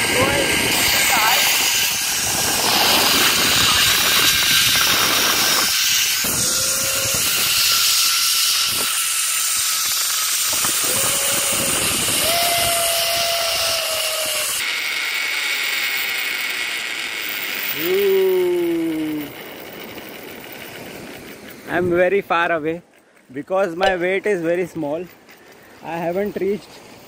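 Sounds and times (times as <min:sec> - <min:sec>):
wind on microphone: 0:00.0 - 0:09.0, 0:09.8 - 0:14.6
zipline pulley rushing hiss: 0:00.0 - 0:22.6.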